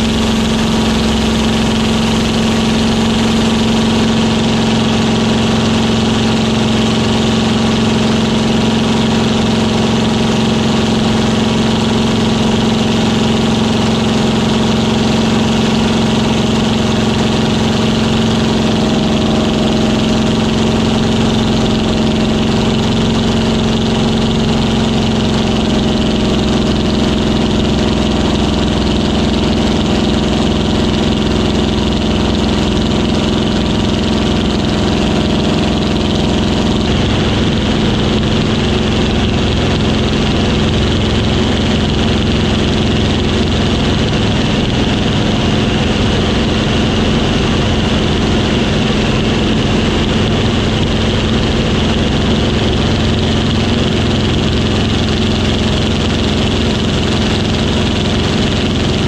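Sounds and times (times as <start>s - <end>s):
aircraft piston engine droning: 0.0s - 59.0s.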